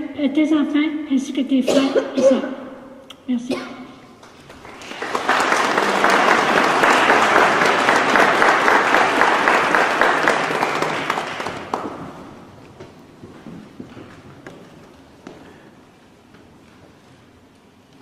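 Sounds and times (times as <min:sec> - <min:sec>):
crowd applauding: 0:04.2 - 0:12.6.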